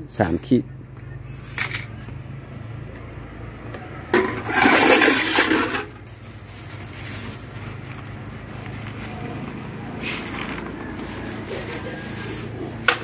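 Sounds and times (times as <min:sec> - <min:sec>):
plastic bag rustling: 0:04.5 - 0:12.8.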